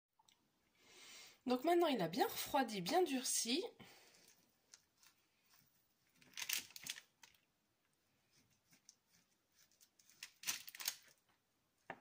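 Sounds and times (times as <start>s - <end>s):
paper rustling: 4.3s - 7.4s, 8.3s - 11.2s.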